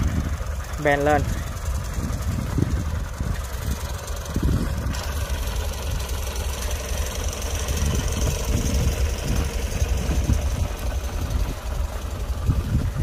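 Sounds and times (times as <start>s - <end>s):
tractor engine idling: 0.0s - 13.0s.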